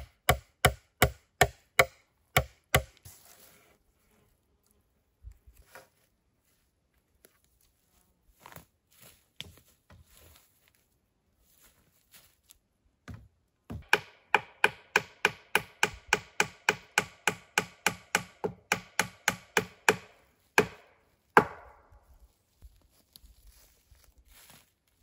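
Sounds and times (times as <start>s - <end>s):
tool striking wood: 0.0s - 3.0s, 13.1s - 21.8s.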